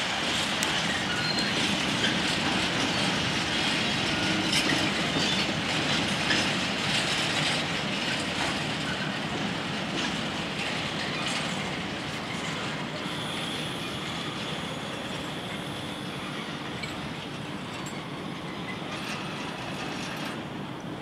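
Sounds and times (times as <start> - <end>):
freight wagons rumbling on rails: 0.0 - 21.0
high wheel squeal: 0.6 - 6.5, 10.6 - 20.5.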